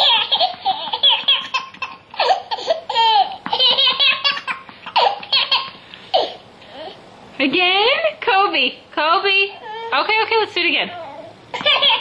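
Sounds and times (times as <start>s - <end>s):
baby laughing: 0.0s - 6.9s, 11.5s - 12.0s.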